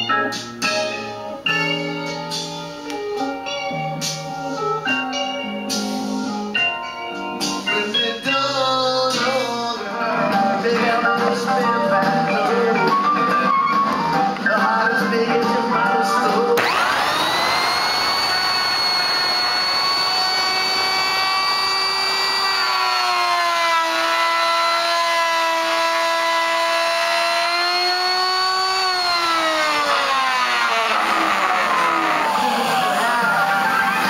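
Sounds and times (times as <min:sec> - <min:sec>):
electric router routing wood: 0:16.6 - 0:34.0.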